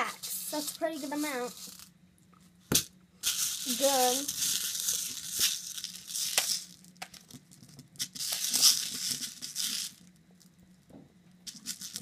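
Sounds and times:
candies rattling in plastic bowl: 0.0 - 1.9, 3.2 - 10.1, 11.5 - 12.0.

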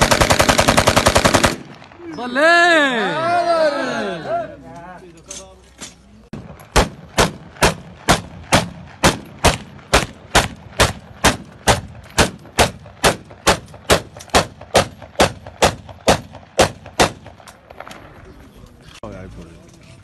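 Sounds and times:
rifle firing single shots: 0.0 - 2.2, 6.3 - 18.2.

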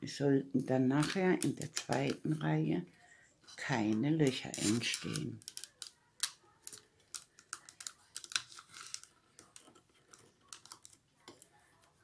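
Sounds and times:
paper rustling: 6.6 - 12.0.

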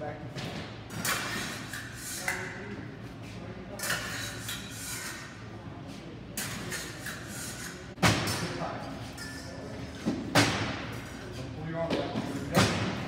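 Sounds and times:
fencing blades clashing and scraping: 0.9 - 2.7, 3.7 - 5.4, 6.4 - 11.3.

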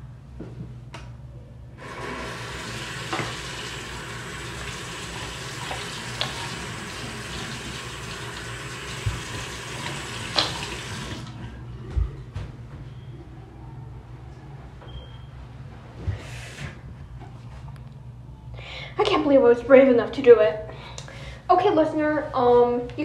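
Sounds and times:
tap running into sink: 1.8 - 11.3.

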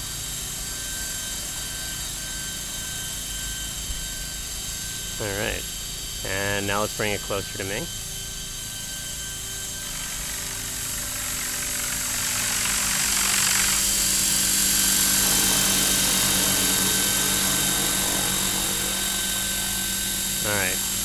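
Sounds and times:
model helicopter motor whine: 0.0 - 21.0
rotor blades swishing: 9.8 - 21.0.

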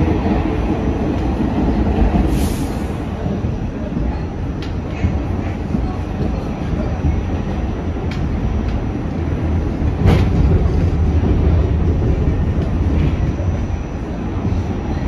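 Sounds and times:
subway car wheels rumbling: 0.0 - 15.0
rail joint clicks: 0.1 - 15.0.

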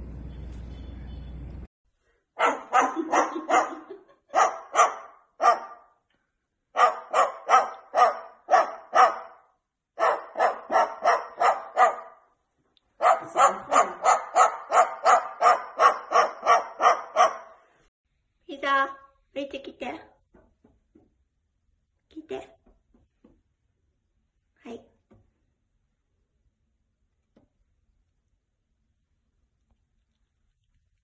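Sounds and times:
cockatoo barking: 2.4 - 5.9, 6.8 - 12.2, 12.9 - 17.7.

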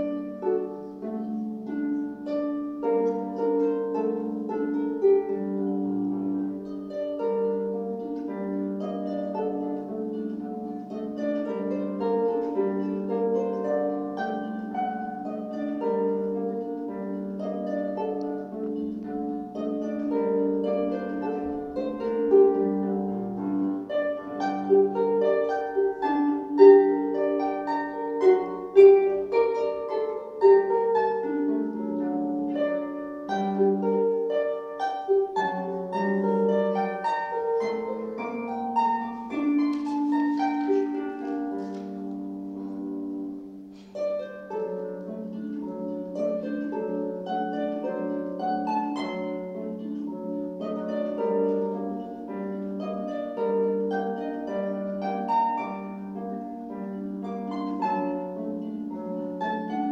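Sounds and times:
harp playing: 0.0 - 59.9.

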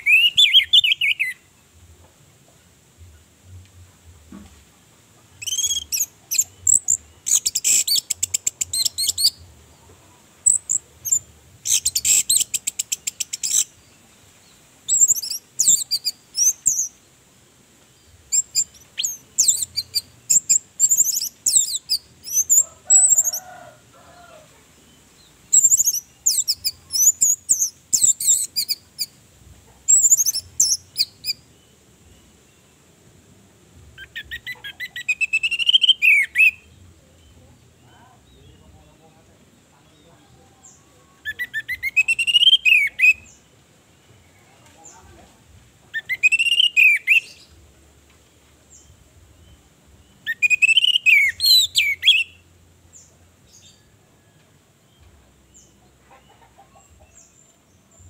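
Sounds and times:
high whistled bird phrases: 0.0 - 1.4, 5.4 - 9.4, 34.0 - 36.7, 41.2 - 43.3, 46.0 - 47.4, 50.2 - 52.4.

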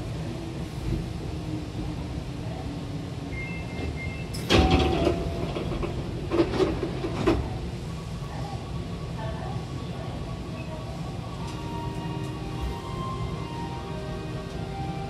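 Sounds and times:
low hum of stopped train: 0.0 - 15.0
train doors sliding open: 3.2 - 8.5, 11.4 - 15.0.

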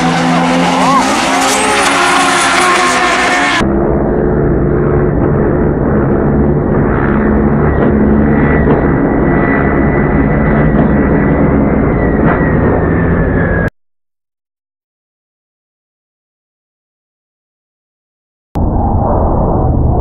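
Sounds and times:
drag car engines with whine: 0.0 - 13.7.

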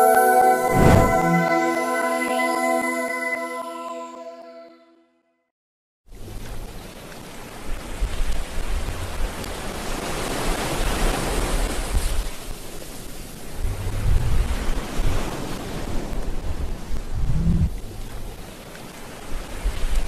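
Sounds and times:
wind buffeting microphone: 13.5 - 18.5.

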